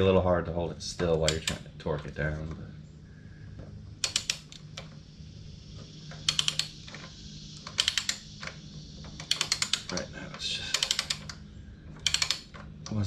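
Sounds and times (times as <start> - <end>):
low hum: 0.0 - 13.0
ratchet wrench clicking: 4.0 - 4.8, 6.2 - 6.8, 7.6 - 8.3, 9.2 - 10.0, 10.7 - 11.4, 12.0 - 13.0.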